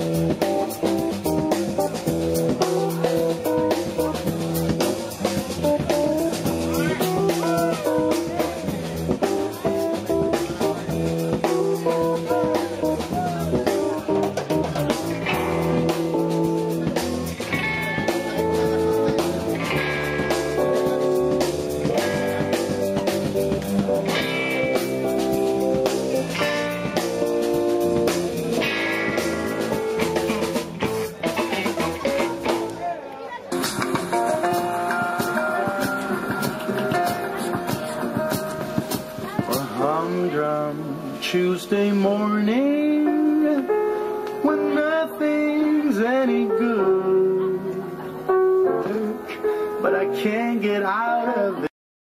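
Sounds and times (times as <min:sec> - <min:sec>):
drum kit beat: 0:00.0 - 0:32.8, 0:33.5 - 0:40.0
electric guitar with bent notes: 0:00.0 - 0:50.3
bass guitar: 0:00.0 - 0:50.4
funk band playing: 0:00.0 - 0:51.6.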